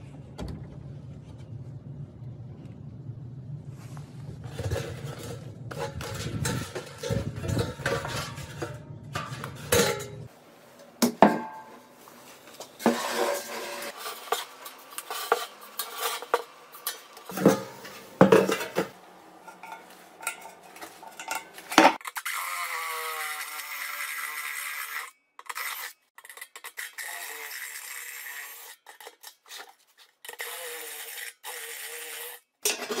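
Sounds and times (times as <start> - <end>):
sheet metal drum clanking: 4.5 - 10.3.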